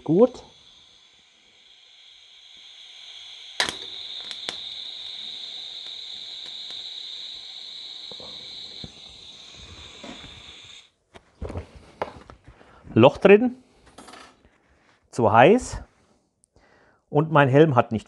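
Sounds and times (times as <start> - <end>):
welding arc crack: 0.0 - 10.9
welding arc hissing: 0.0 - 11.0.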